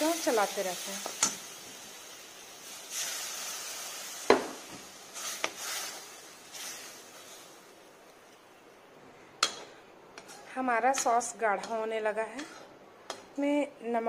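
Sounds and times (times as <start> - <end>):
roux sizzling: 0.0 - 13.6
spoon scraping a pan: 10.2 - 12.7.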